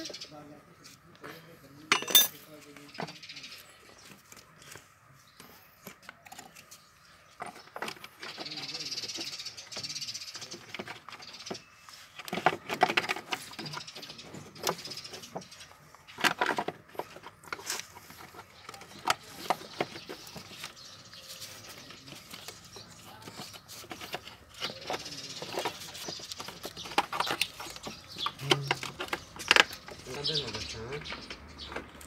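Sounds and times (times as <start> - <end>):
tools clinking on metal engine parts: 1.9 - 3.2.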